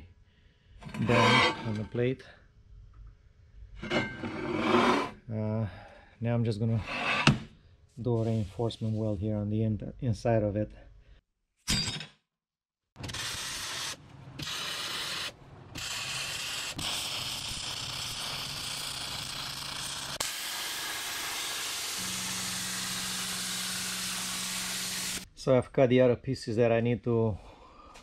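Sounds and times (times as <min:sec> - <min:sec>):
welding arc crackling: 0:13.0 - 0:25.3.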